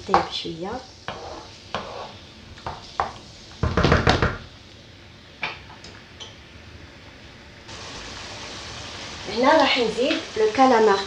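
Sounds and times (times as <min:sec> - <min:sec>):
wooden spoon scraping a pan: 0:01.0 - 0:03.2.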